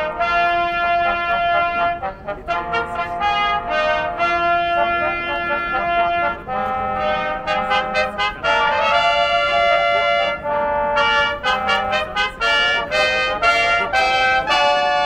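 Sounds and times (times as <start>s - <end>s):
brass fanfare: 0.0s - 15.0s.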